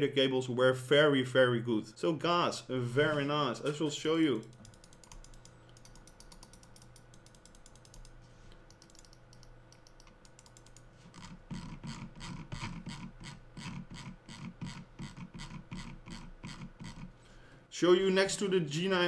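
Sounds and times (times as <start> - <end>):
mouse clicking: 4.4 - 10.9.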